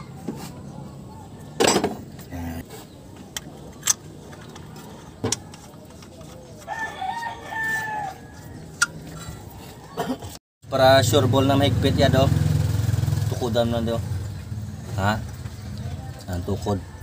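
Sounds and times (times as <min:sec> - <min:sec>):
clicks and knocks on engine parts: 0:03.1 - 0:07.3
rooster crowing: 0:06.7 - 0:08.7.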